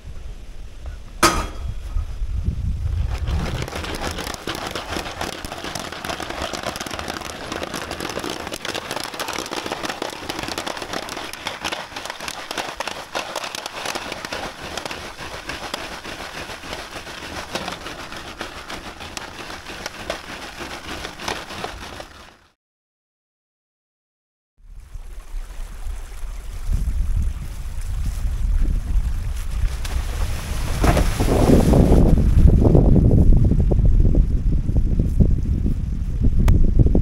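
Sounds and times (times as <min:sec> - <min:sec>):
popcorn popping in foil pan: 0:03.3 - 0:22.4.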